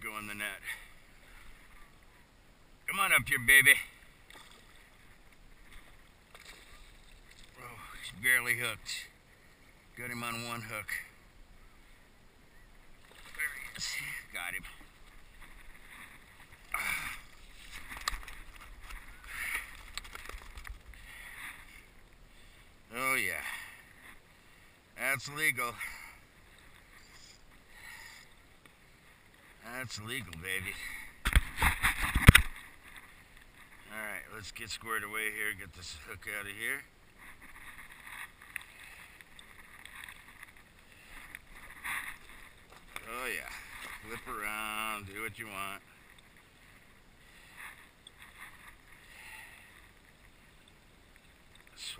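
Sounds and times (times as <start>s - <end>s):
hands rustling net: 15.1s - 21.7s.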